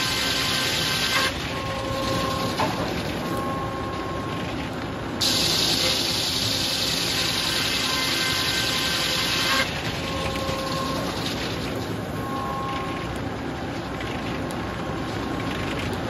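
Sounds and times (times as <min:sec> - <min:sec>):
circular saw cutting wood: 0:00.0 - 0:02.0, 0:05.7 - 0:09.7
machinery whining: 0:00.0 - 0:13.5.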